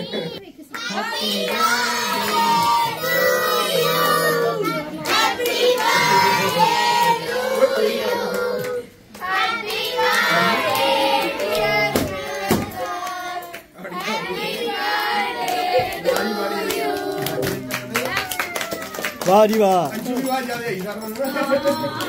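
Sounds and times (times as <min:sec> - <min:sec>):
children singing together: 0:00.0 - 0:17.4
hand claps: 0:15.5 - 0:22.0.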